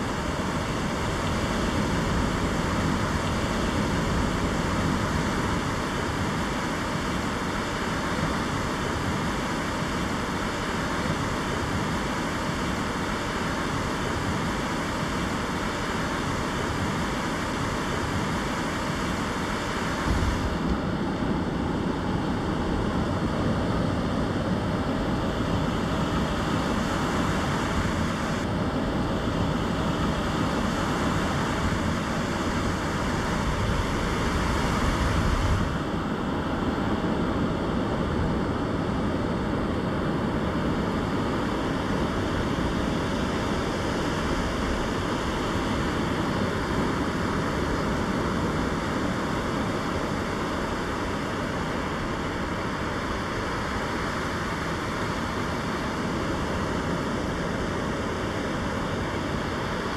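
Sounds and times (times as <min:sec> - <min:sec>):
wind rumbling on microphone: 0:29.0 - 0:36.6.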